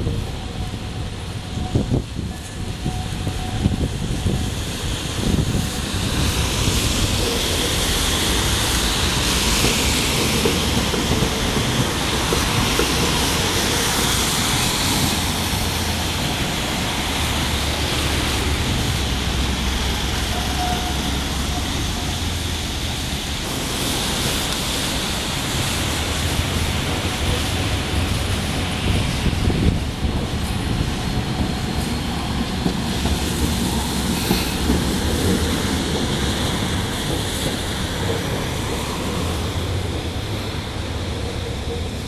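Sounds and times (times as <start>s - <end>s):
cars passing on wet road: 0.0s - 42.0s
trams running on track: 0.0s - 42.0s.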